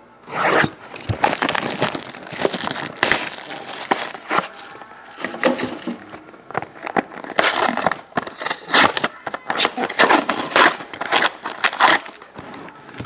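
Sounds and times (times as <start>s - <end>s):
plastic wrap tearing and crinkling: 0.3s - 4.8s, 6.5s - 12.3s.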